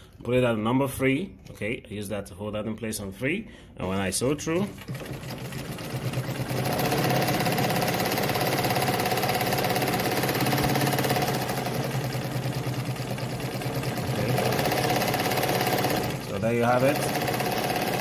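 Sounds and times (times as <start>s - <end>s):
sewing machine clattering: 4.4s - 18.0s.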